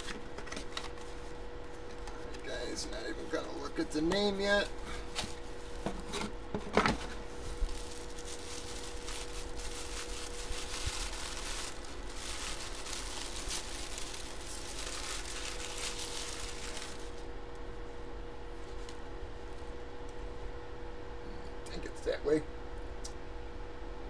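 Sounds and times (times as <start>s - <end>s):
wrapping paper crinkling: 7.3s - 17.3s.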